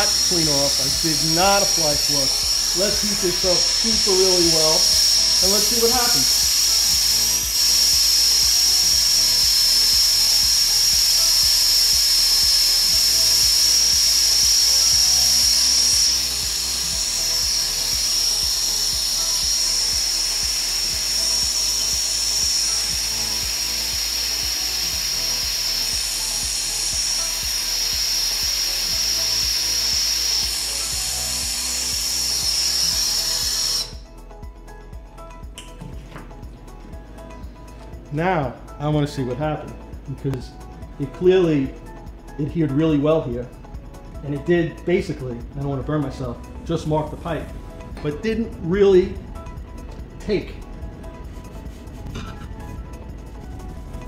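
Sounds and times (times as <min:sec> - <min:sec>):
torch flame hissing: 0:00.0 - 0:34.0.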